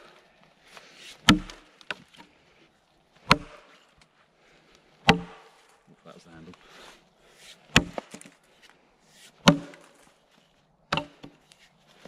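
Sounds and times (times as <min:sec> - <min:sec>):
axe chopping into log: 0:01.2 - 0:02.0, 0:03.2 - 0:03.7, 0:05.0 - 0:05.6, 0:07.7 - 0:08.4, 0:09.4 - 0:10.1, 0:10.9 - 0:11.4.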